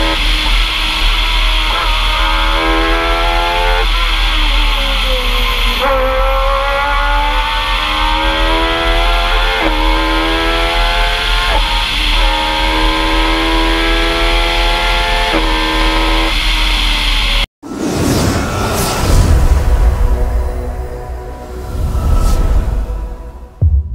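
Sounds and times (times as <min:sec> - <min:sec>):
race car engine at full throttle: 0:00.0 - 0:17.8.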